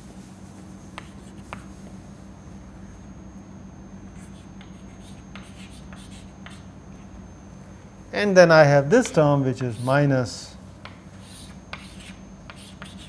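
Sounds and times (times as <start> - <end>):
low room hum: 0.0 - 13.0
chalk writing on blackboard: 0.4 - 1.9, 4.1 - 7.1, 9.6 - 10.0, 10.8 - 13.0
chalk taps: 0.9 - 1.9, 4.3 - 6.6, 9.0 - 9.9, 10.8 - 13.0.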